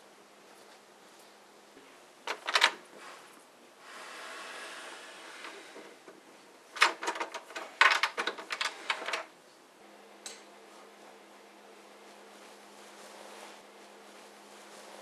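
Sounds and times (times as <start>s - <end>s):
door handle and latch rattling: 2.3s - 2.8s, 6.8s - 9.3s.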